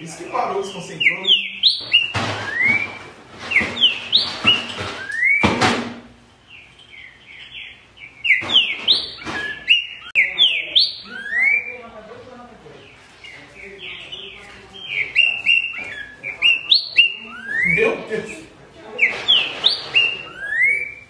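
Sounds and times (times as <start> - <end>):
bird singing whistled phrases: 0.6 - 5.5, 6.9 - 11.8, 14.1 - 17.9, 19.0 - 21.0.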